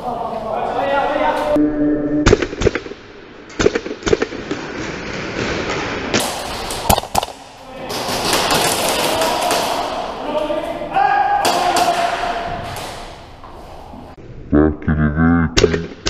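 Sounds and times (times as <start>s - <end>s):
noisy game din: 1.5s - 4.5s, 6.1s - 10.2s, 14.5s - 16.0s
airsoft gunshots: 2.3s - 4.6s.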